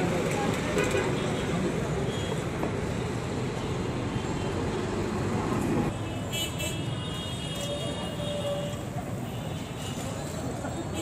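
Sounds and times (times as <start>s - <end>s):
busy street traffic: 0.0s - 11.0s.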